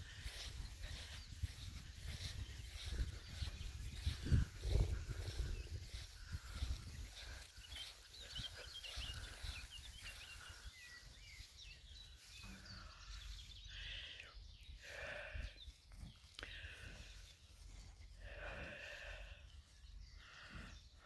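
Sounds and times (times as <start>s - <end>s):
wind rumbling on microphone: 0.0s - 11.4s
songbirds chirping: 0.0s - 21.0s.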